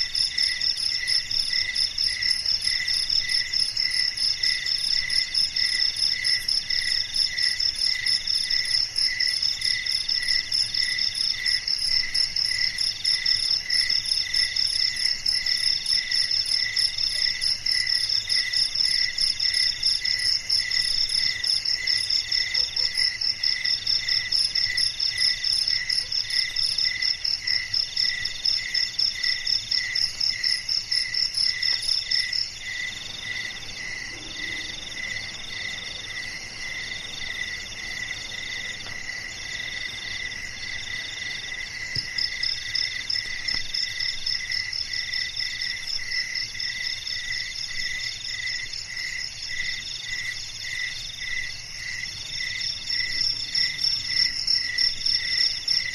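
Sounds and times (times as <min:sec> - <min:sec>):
crickets chirping: 0:00.0 - 0:55.9.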